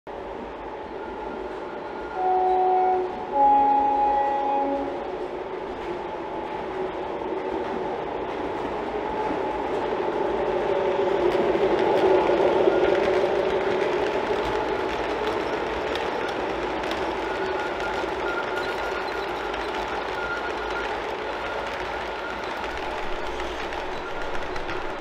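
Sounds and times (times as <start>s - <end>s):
wheels on rail: 0.1s - 25.0s
two-tone diesel locomotive horn: 2.0s - 5.2s.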